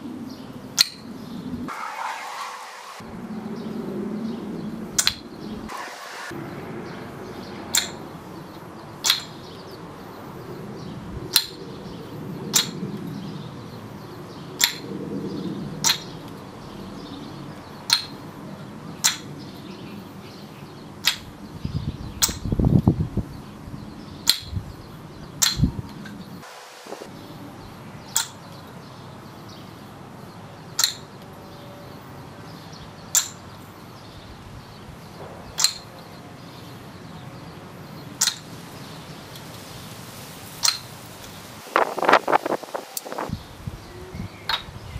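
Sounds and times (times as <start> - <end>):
wooden ball clacking on cups: 5.0 - 5.2, 7.7 - 8.0, 9.0 - 9.4, 12.5 - 12.8, 14.6 - 14.9, 15.8 - 16.2, 17.8 - 18.2, 19.0 - 19.4, 21.0 - 21.3, 22.2 - 22.4, 24.2 - 24.6, 25.4 - 26.2, 28.1 - 28.5, 30.7 - 31.2, 33.1 - 33.4, 35.6 - 35.9, 38.2 - 38.5, 40.6 - 40.9, 44.5 - 44.7.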